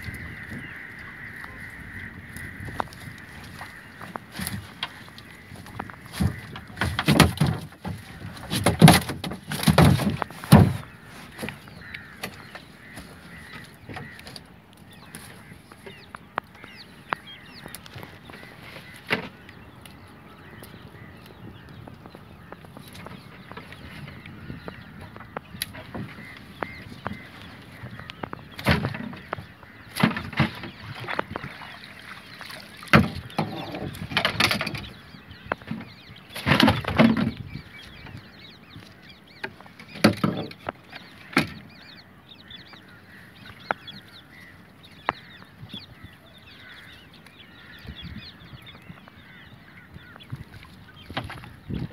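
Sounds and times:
thumps in canoe: 2.5s - 14.4s, 22.1s - 31.8s, 32.4s - 38.2s, 39.4s - 41.7s, 49.3s - 51.9s
fish and net thudding on hull: 2.6s - 14.4s, 25.2s - 34.9s, 35.6s - 37.4s.

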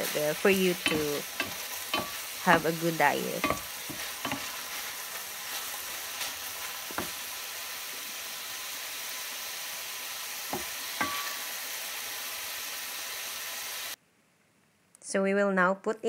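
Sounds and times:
mushrooms sizzling in a frying pan: 0.0s - 14.0s
wooden spatula knocking on pan: 0.8s - 2.7s, 3.4s - 4.5s, 6.9s - 7.2s, 10.5s - 11.3s.

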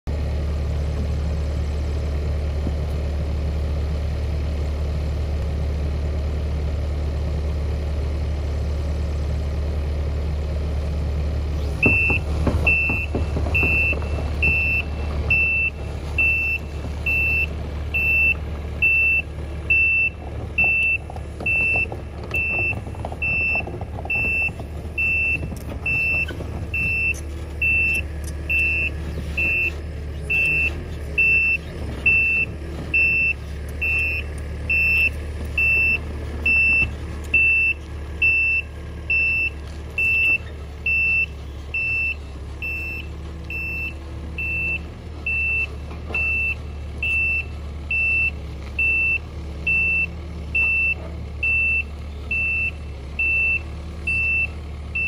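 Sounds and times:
excavator diesel engine: 0.0s - 55.0s
knocks: 11.8s - 15.7s, 20.3s - 27.2s
motion alarm beeps: 11.8s - 55.0s.

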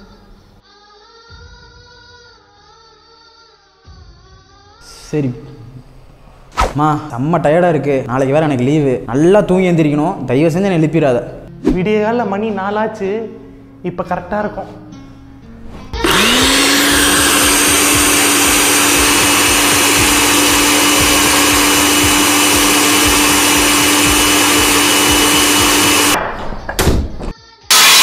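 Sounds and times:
mixer grinder motor whining: 16.0s - 26.2s, 27.7s - 28.0s.

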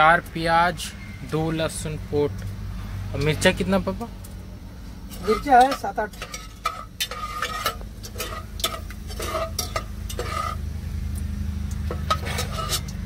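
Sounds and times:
oil sizzling: 4.2s - 13.0s
metal spoon scraping a pot: 5.1s - 10.8s, 11.8s - 13.0s.

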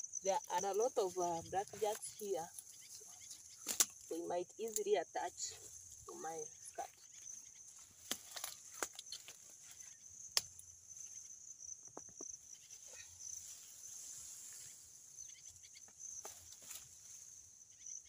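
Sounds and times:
high insect buzz: 0.0s - 18.0s
plants rustling: 0.3s - 10.0s, 16.2s - 17.4s
stems snapping: 3.6s - 4.1s, 8.0s - 9.4s, 10.3s - 10.7s.

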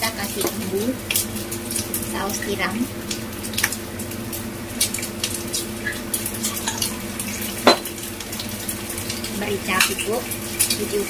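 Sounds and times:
meat sizzling in oil: 0.0s - 11.0s.

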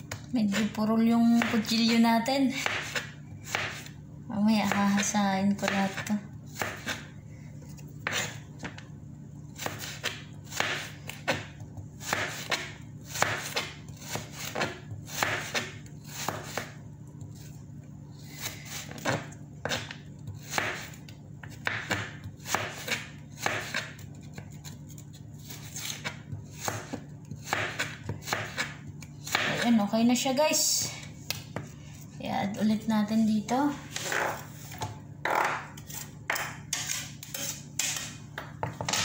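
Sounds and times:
steady low hum: 0.0s - 39.0s
knife chopping on cutting board: 2.6s - 3.9s, 4.6s - 7.1s, 8.0s - 8.8s, 9.6s - 16.8s, 18.4s - 24.6s, 25.4s - 29.6s
person talking: 32.2s - 33.9s.

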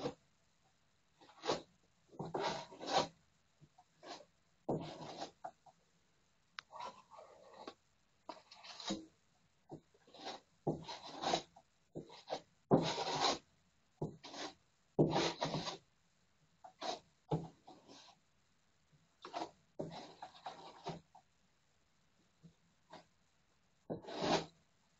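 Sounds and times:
filling knife scraping filler: 10.0s - 11.5s.

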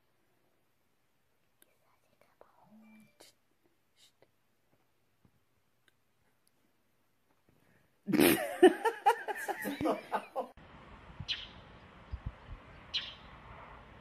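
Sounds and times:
low hiss: 0.0s - 14.0s
person laughing: 8.1s - 10.6s.

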